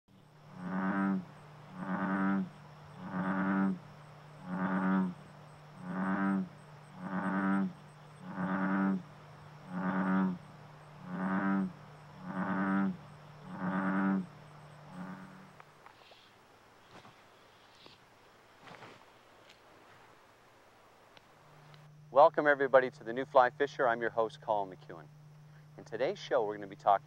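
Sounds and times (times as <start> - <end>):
bullfrog croaking: 0.1 - 16.3.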